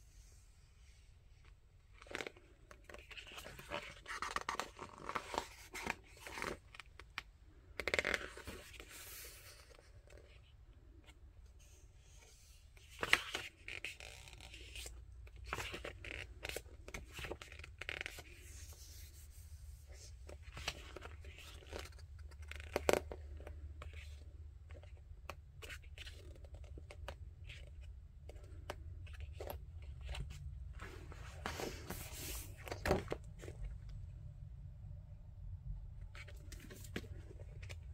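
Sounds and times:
pages rustling and crinkling: 0:01.9 - 0:07.1, 0:12.8 - 0:25.0, 0:25.6 - 0:33.8, 0:36.2 - 0:37.9.

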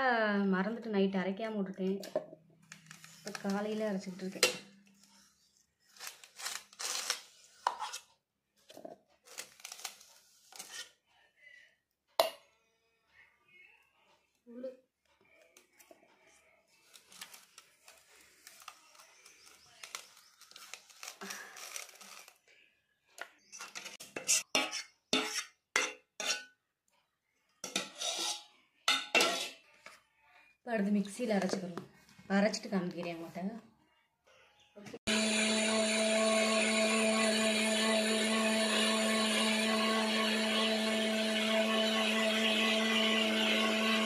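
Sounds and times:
steel spoon scraping steel bowl: 0:23.6 - 0:26.5, 0:27.6 - 0:29.6.

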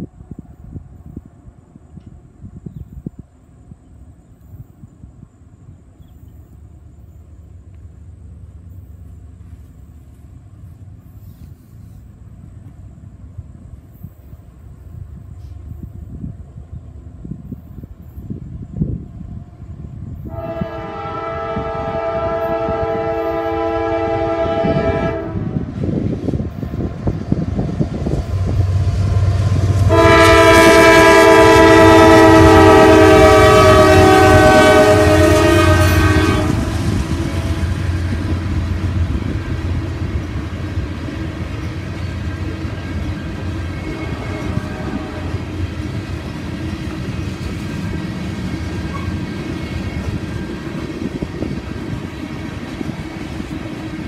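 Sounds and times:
locomotive air horn blasts: 0:20.2 - 0:25.7, 0:29.8 - 0:37.7, 0:43.8 - 0:45.6
train wheels clacking on rail joints: 0:45.3 - 0:54.0.

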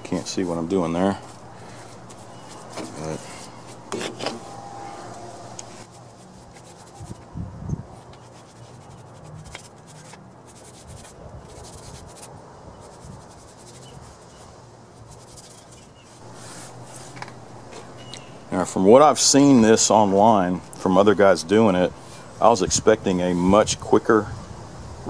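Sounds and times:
paintbrush scrubbing on metal: 0:00.0 - 0:07.3, 0:07.9 - 0:22.6
insects chirring: 0:00.3 - 0:07.0.

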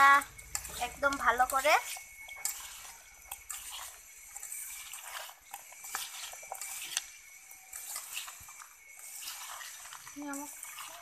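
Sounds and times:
wet squelching of kneading: 0:00.0 - 0:11.0.

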